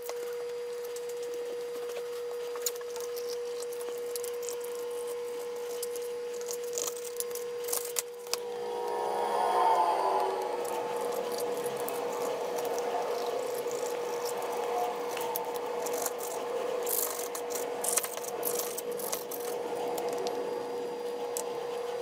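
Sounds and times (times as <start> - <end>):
steady hum: 8.2 - 22.0.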